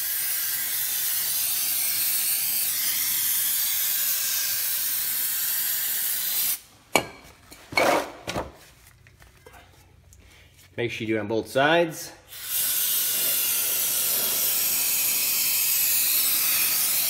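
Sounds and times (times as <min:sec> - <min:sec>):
aerosol spray hissing: 0:00.0 - 0:06.6, 0:12.4 - 0:17.0.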